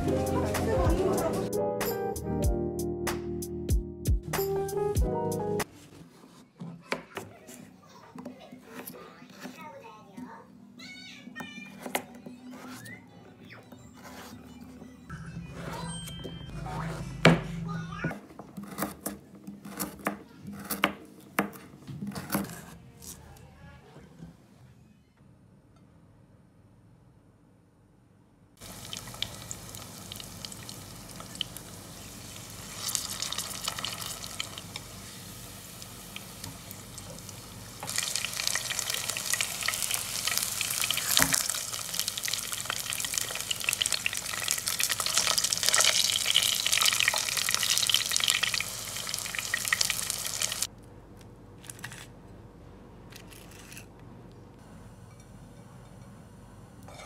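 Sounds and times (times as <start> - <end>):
chicken frying in oil: 28.6 - 50.7.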